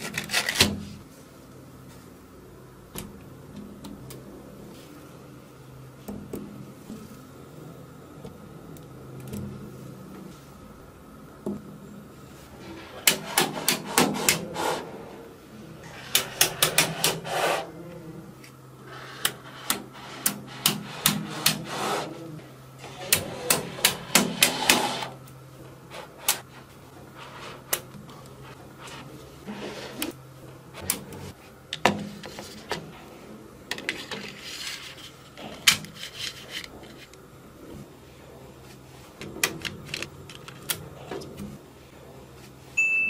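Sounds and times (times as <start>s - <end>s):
faint low hum: 0.0s - 24.2s.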